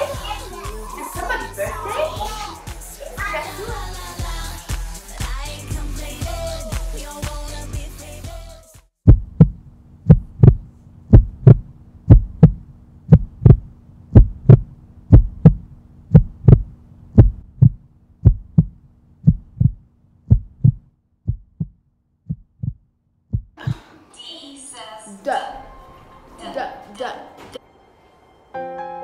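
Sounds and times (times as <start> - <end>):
heartbeat thumps: 9.0 - 23.8
low steady hum: 9.1 - 21.7.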